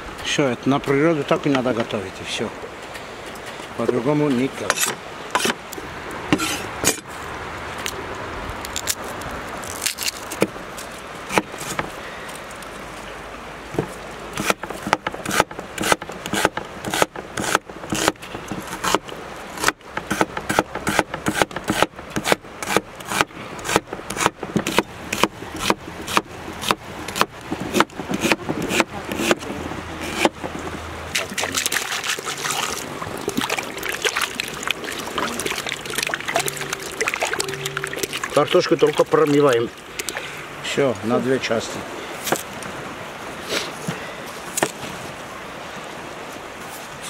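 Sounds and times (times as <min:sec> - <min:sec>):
cleaver chopping on wooden board: 0:11.3 - 0:11.9, 0:13.8 - 0:19.0, 0:19.6 - 0:29.4, 0:30.0 - 0:30.5.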